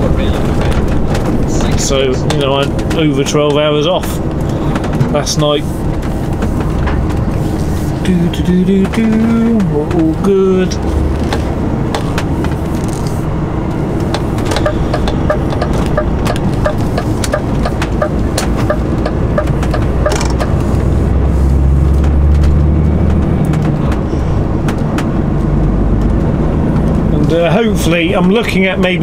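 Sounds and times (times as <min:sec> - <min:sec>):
diesel engine drone: 0:00.0 - 0:29.0
turn indicator ticking: 0:14.1 - 0:20.9.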